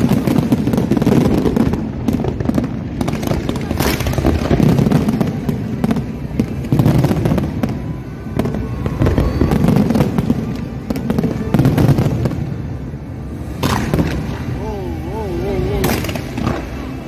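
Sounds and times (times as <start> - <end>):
fireworks booms: 0.0 - 17.0
fireworks cracks and crackling: 0.0 - 17.0.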